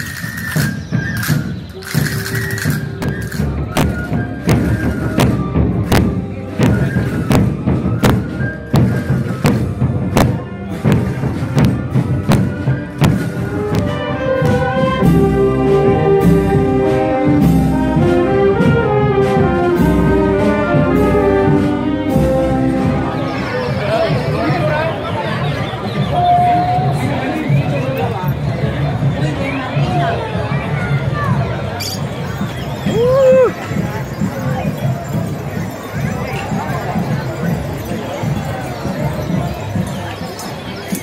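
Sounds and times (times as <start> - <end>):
drum strokes: 0.0 - 24.8, 31.1 - 41.0
wind band playing melody: 0.0 - 27.3.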